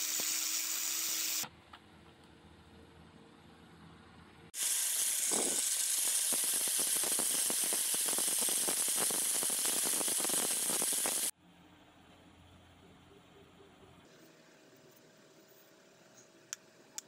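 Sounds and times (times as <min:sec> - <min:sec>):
angle grinder scraping: 0:04.6 - 0:11.3.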